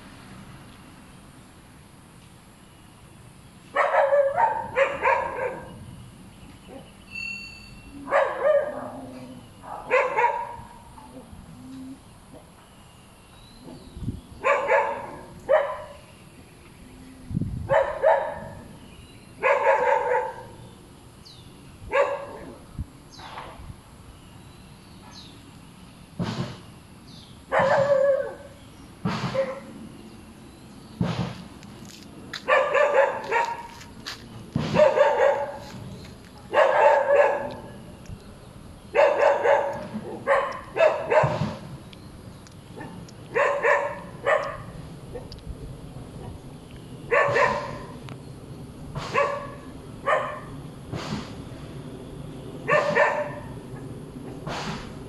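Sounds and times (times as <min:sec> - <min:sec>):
dog barking: 0:03.8 - 0:05.8, 0:08.0 - 0:10.8, 0:14.4 - 0:16.0, 0:17.7 - 0:18.7, 0:19.4 - 0:20.6, 0:21.9 - 0:22.6, 0:27.5 - 0:28.5, 0:29.3 - 0:29.7, 0:32.4 - 0:33.9, 0:34.7 - 0:35.8, 0:36.4 - 0:37.8, 0:38.9 - 0:41.6, 0:42.8 - 0:45.3, 0:47.1 - 0:48.0, 0:49.1 - 0:50.6, 0:52.7 - 0:53.6.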